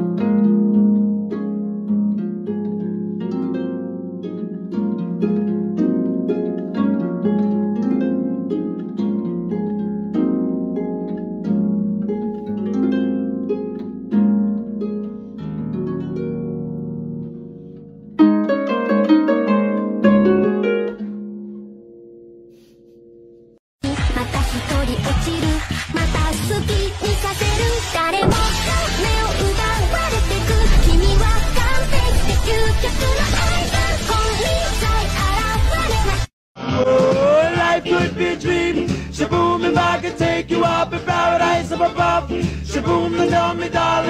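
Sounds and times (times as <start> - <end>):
plucked harp-like notes: 0.0 - 23.5.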